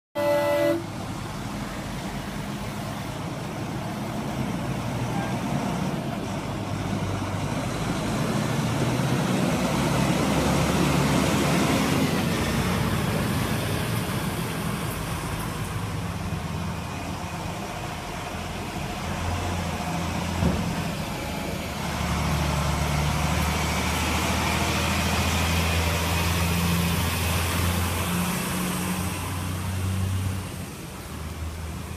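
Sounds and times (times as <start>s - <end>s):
lorry diesel engine passing: 0.2s - 31.9s.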